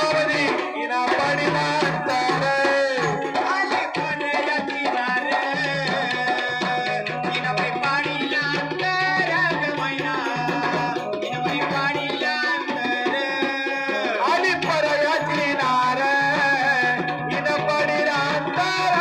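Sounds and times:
electronic keyboard: 0:00.0 - 0:19.0
hand drum beat: 0:00.0 - 0:19.0
person singing through pa: 0:00.0 - 0:19.0.

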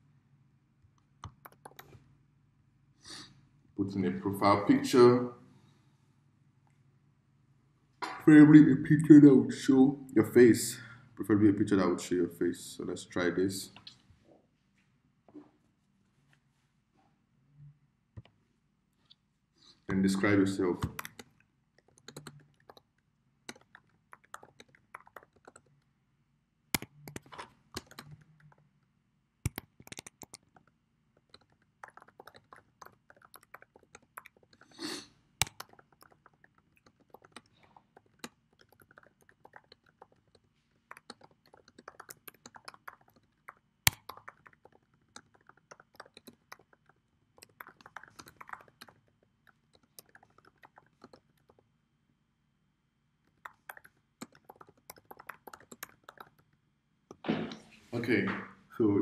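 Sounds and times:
keyboard typing: 0:01.2 - 0:02.0, 0:20.2 - 0:22.9, 0:23.5 - 0:25.8, 0:26.8 - 0:28.7, 0:29.4 - 0:34.7, 0:35.4 - 0:51.6, 0:53.3 - 0:56.5.

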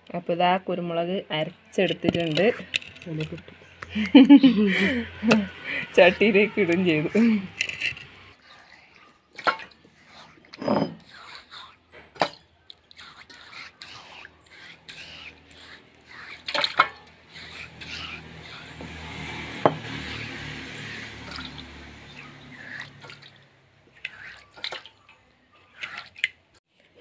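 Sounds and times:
water splashing and dripping: 0:08.5 - 0:10.5, 0:12.0 - 0:26.6.

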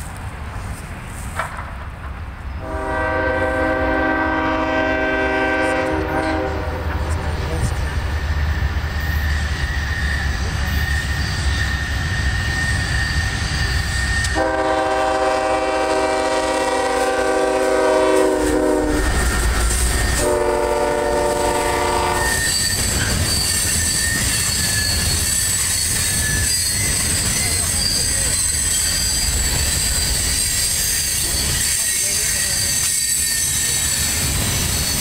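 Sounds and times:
locomotive engine rumble: 0:00.0 - 0:32.9
train air horn: 0:02.6 - 0:07.2, 0:14.2 - 0:22.8
wheel squeal: 0:08.4 - 0:14.4, 0:19.0 - 0:20.2, 0:21.8 - 0:35.0.

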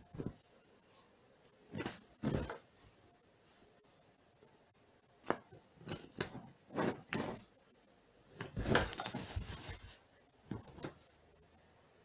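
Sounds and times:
cat thumping into pillow: 0:01.7 - 0:02.6, 0:08.4 - 0:09.7
rustles of bedding: 0:01.7 - 0:03.6, 0:08.4 - 0:11.0.

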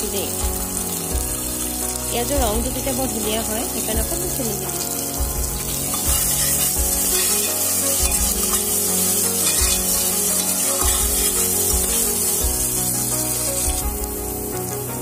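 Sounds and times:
onions sizzling in oil: 0:00.0 - 0:15.0
soft background music: 0:00.0 - 0:15.0
metal spoon scraping pot: 0:05.6 - 0:12.3.

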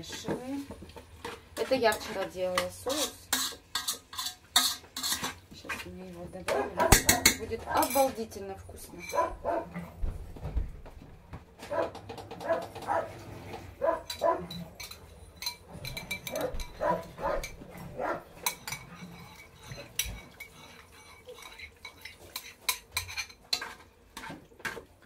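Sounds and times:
spoon clinking and scraping bowl: 0:01.2 - 0:05.9, 0:06.5 - 0:09.4, 0:12.0 - 0:24.9
dog barking: 0:06.5 - 0:07.2, 0:09.1 - 0:09.8, 0:11.7 - 0:13.2, 0:13.8 - 0:14.5, 0:16.3 - 0:18.3.

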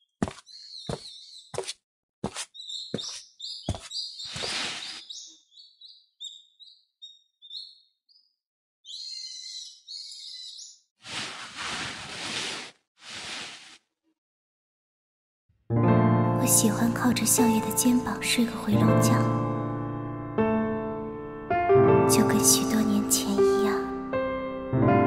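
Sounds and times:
small birds chirping: 0:00.0 - 0:10.9.

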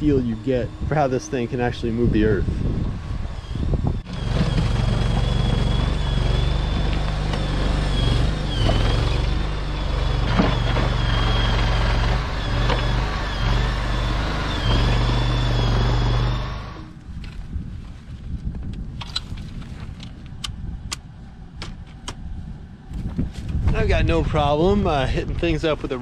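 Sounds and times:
high whine: 0:00.0 - 0:17.0
mini skid steer running: 0:03.1 - 0:16.9.

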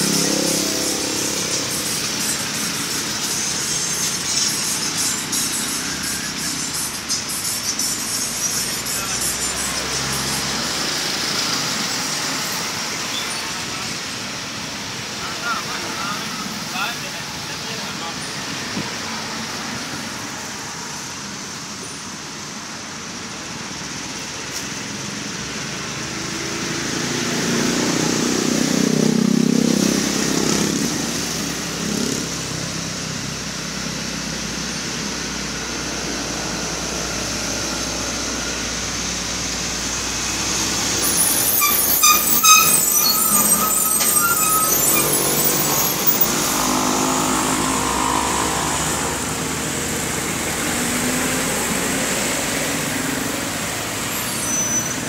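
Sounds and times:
vehicles passing: 0:00.0 - 0:55.0
high-pitched chirps: 0:00.3 - 0:10.6, 0:41.0 - 0:46.5.

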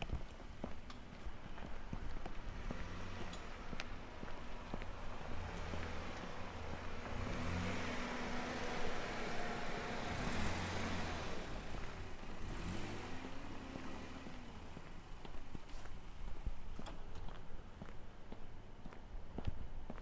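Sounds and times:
car driving past: 0:04.4 - 0:14.9.

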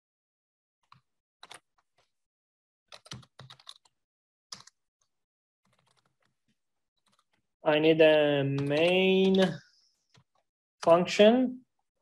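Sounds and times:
keyboard typing: 0:00.8 - 0:02.1, 0:02.9 - 0:04.8, 0:05.6 - 0:06.4, 0:07.0 - 0:07.4, 0:08.6 - 0:10.4.

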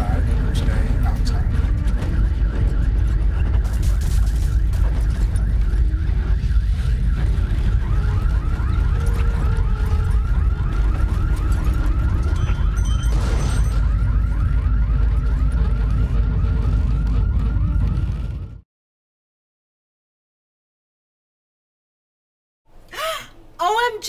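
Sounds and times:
loud low rumble: 0:00.0 - 0:11.4, 0:13.9 - 0:18.6.

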